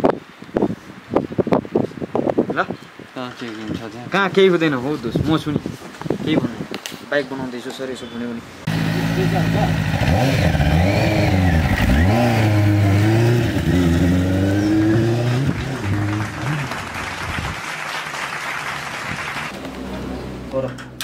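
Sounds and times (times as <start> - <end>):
motorcycle engine revving: 8.7 - 17.6.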